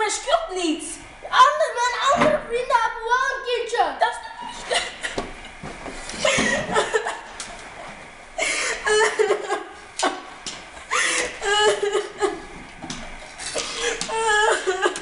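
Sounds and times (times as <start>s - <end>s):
children giggling: 4.4s - 7.5s, 8.4s - 12.6s, 13.4s - 15.0s.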